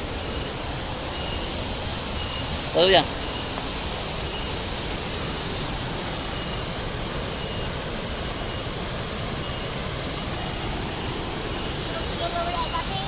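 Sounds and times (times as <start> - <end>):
waterfall and river rushing: 0.0 - 13.0
faint high peep: 11.5 - 13.0.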